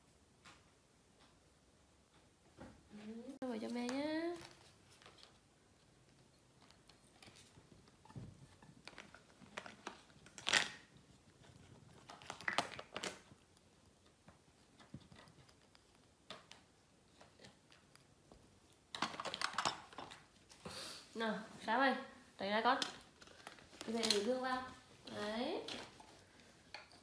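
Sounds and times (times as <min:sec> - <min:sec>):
plastic toys rustling and knocking: 0:03.6 - 0:20.6, 0:22.5 - 0:27.0.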